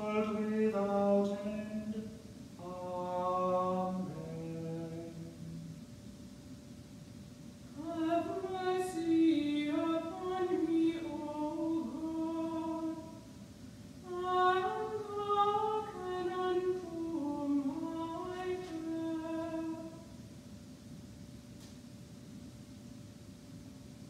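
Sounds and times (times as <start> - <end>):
woman chanting plainsong: 0.0 - 5.5, 7.8 - 13.3.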